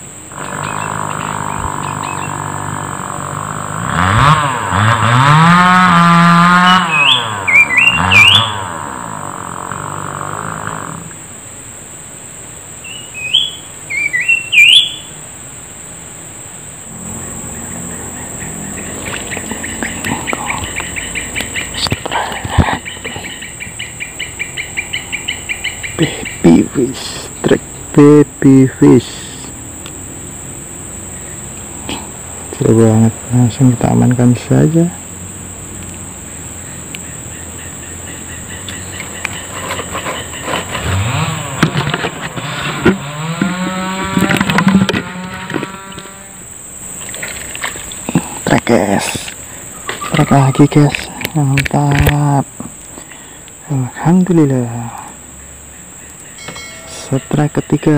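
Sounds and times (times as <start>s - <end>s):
engine revving: 0.0s - 11.3s, 16.8s - 28.2s, 29.0s - 51.1s
high insect drone: 0.0s - 57.9s
insects chirping: 0.0s - 57.9s
small water splashes: 18.8s - 21.8s, 46.9s - 48.4s.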